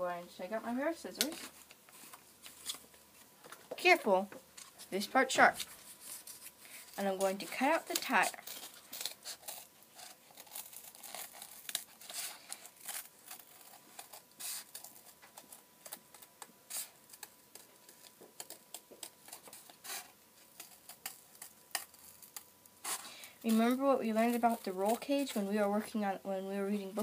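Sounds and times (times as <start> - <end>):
scissors cutting cardboard: 5.5 - 25.5.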